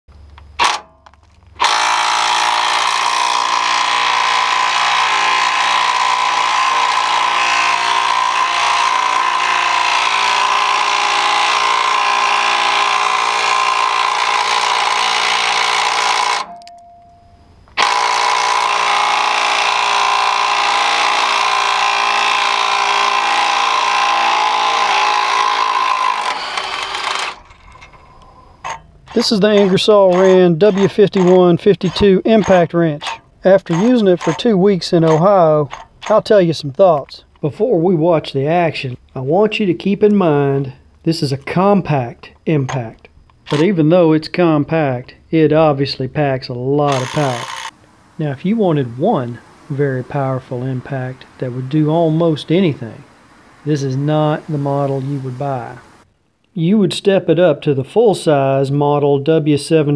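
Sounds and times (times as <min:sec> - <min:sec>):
impact wrench hammering bolts: 0:13.0 - 0:16.8, 0:24.7 - 0:36.4, 0:42.6 - 0:43.7, 0:46.9 - 0:47.8.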